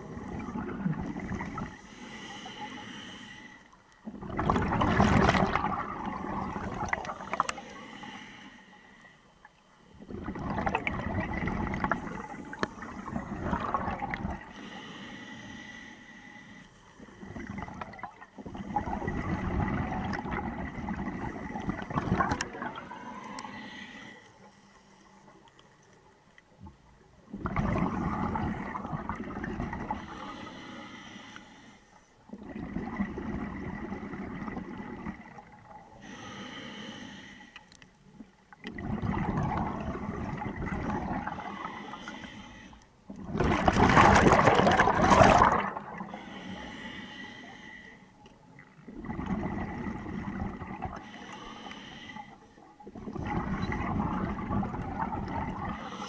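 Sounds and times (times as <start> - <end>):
diver breathing through regulator: 1.1 - 3.8, 7.0 - 9.4, 11.9 - 17.5, 22.3 - 25.3, 29.9 - 32.0, 36.0 - 37.7, 41.2 - 42.9, 45.4 - 48.2, 50.9 - 52.6, 55.6 - 56.0
bubbling exhalations: 4.1 - 7.6, 10.0 - 14.5, 17.2 - 23.1, 27.3 - 30.0, 38.7 - 41.5, 43.2 - 46.4, 48.9 - 51.1, 52.9 - 56.0.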